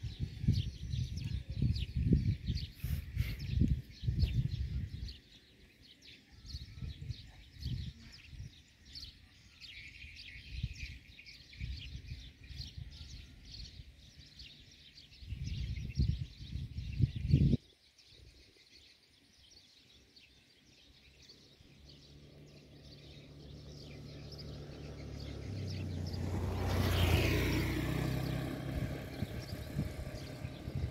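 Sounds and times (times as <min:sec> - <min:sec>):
low rumbling wind gusts: 0:00.0 - 0:05.4, 0:15.1 - 0:17.6, 0:21.7 - 0:30.9
small birds chirping: 0:00.0 - 0:30.9.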